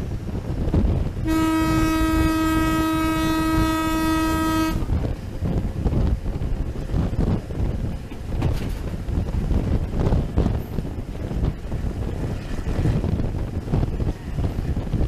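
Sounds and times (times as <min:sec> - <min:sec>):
moving train rumble: 0:00.0 - 0:15.0
wind on microphone: 0:00.0 - 0:15.0
locomotive horn blast: 0:01.2 - 0:05.0.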